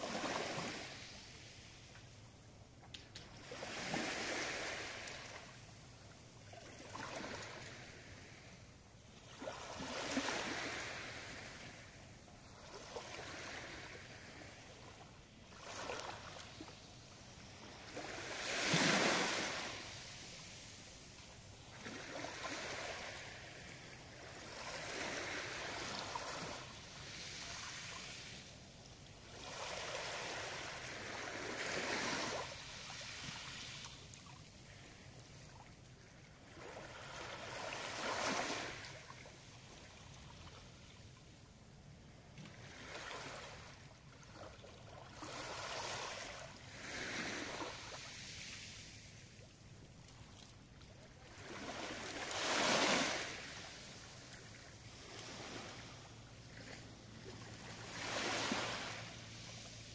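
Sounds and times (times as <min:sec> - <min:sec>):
waves washing on pebble beach: 0:03.4 - 0:05.4, 0:17.8 - 0:21.0, 0:45.2 - 0:49.0, 0:51.3 - 0:54.3, 0:57.3 - 0:59.9.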